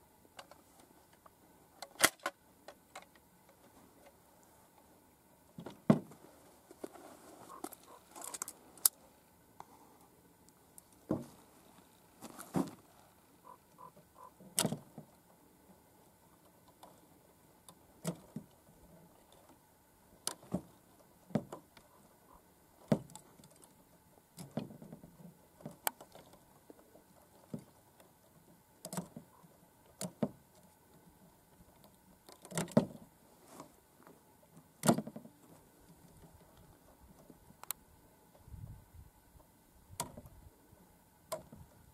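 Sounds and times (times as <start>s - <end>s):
clicks and knocks of metal and wood: 0.3s - 4.2s, 5.5s - 9.0s, 10.8s - 13.0s, 13.8s - 15.2s, 17.6s - 18.6s, 20.2s - 22.0s, 22.8s - 37.8s, 40.0s - 40.3s, 41.3s - 41.8s.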